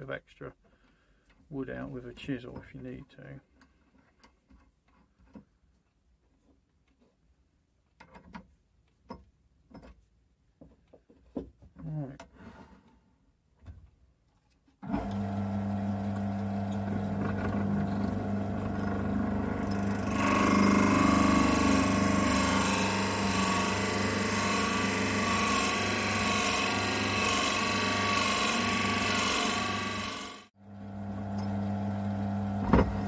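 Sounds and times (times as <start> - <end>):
wood lathe motor humming: 14.8 - 33.0
drill bit boring into wood: 14.9 - 30.5.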